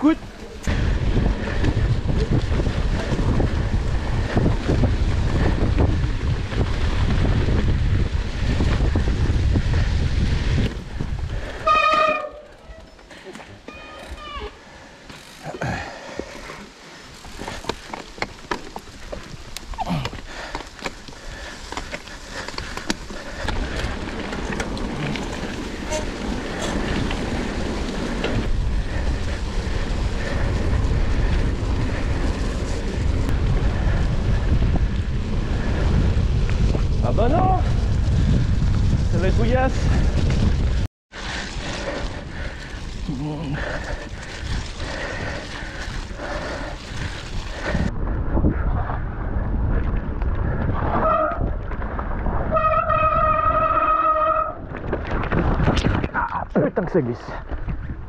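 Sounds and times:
wind buffeting microphone: 0.0 - 12.1, 17.1 - 58.0
bike rolling on dirt trail: 0.0 - 58.0
disc brakes squealing: 13.7 - 14.6.

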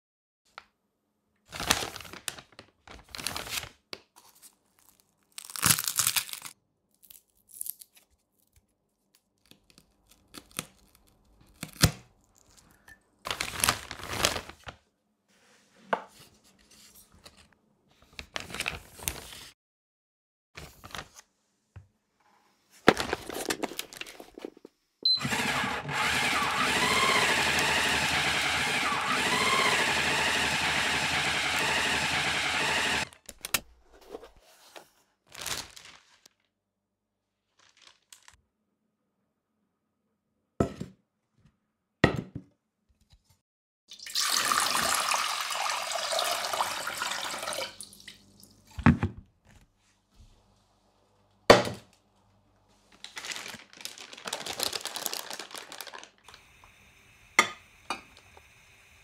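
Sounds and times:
plastic bag crinkling: 1.5 - 3.8, 13.3 - 14.8, 22.9 - 24.6, 35.3 - 36.4, 37.4 - 38.4, 52.8 - 56.4
vacuum sealer pump running: 25.1 - 33.1.

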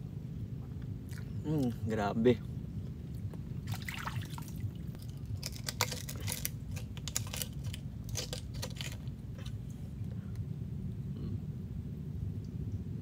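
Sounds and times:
machete scraping oyster shell: 5.3 - 9.5.

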